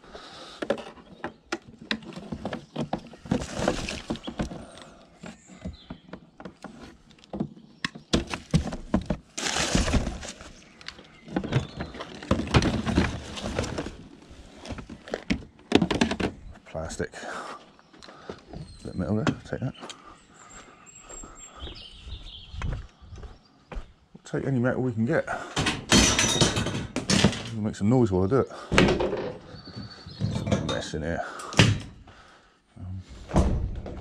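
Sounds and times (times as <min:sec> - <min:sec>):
hands rummaging through junk: 0:00.5 - 0:16.5.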